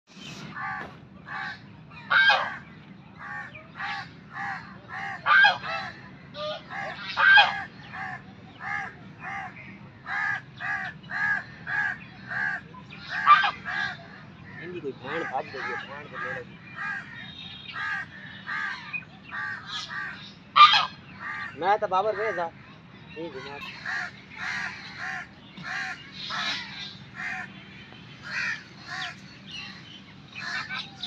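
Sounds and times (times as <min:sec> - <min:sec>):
goose honking: 0:01.4 - 0:02.6, 0:03.2 - 0:09.4, 0:19.4 - 0:21.5.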